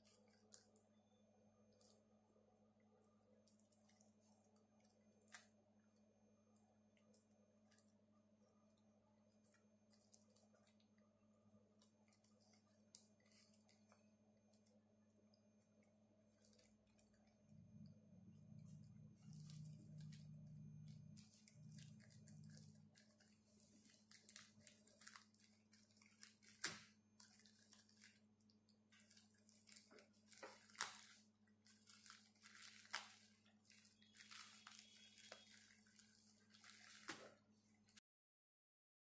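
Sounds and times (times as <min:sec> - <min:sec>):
steady low hum: 0:00.0 - 0:38.0
plastic mailer crinkling: 0:21.0 - 0:37.6.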